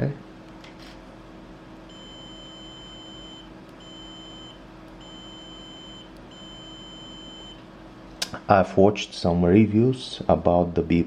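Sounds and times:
multimeter beeping: 1.9s - 7.6s.

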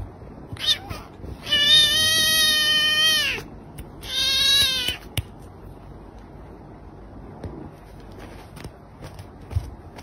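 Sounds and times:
kitten meowing: 0.5s - 5.2s.

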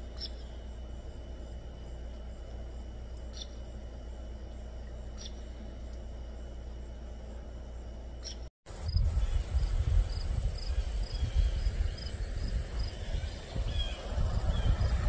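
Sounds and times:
cricket chirping: 0.0s - 15.0s
wind buffeting microphone: 8.7s - 15.0s.

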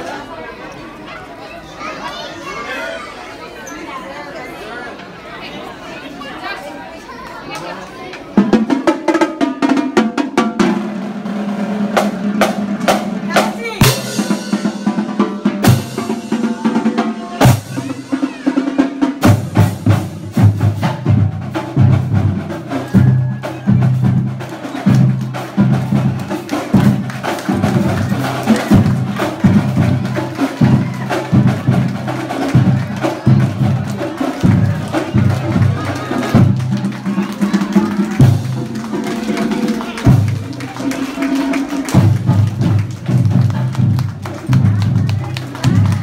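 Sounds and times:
marching drumline cadence: 8.3s - 46.0s
marching bass drums booming: 19.1s - 39.0s.

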